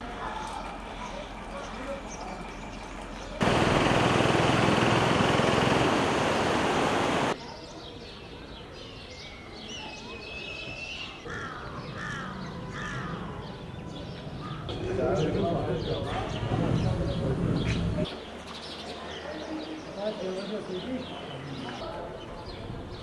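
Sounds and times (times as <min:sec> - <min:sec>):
birds calling: 0:00.0 - 0:23.0
loud rushing noise: 0:03.4 - 0:07.4.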